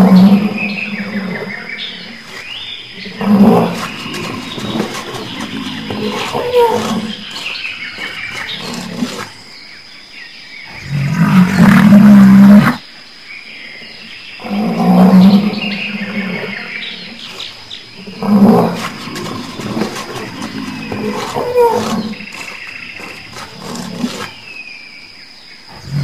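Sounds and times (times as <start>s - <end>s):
big cat roaring: 0.0s - 2.2s, 2.9s - 9.4s, 10.7s - 12.8s, 14.4s - 24.4s, 25.7s - 26.0s
big cat growling: 0.0s - 9.4s, 10.7s - 12.8s, 14.4s - 24.6s, 25.7s - 26.0s.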